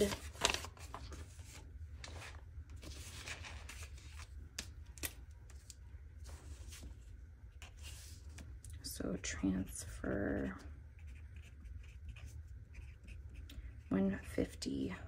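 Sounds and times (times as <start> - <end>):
paper rustling on a tabletop: 0.0 - 8.5
low steady hum: 0.0 - 15.0.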